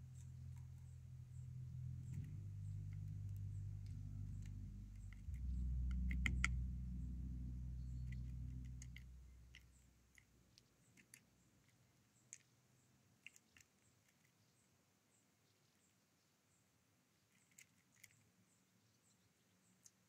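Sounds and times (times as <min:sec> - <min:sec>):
low steady hum: 0:00.0 - 0:13.0
bird pecking seeds on wood: 0:01.9 - 0:06.6, 0:08.0 - 0:14.5, 0:17.3 - 0:18.4.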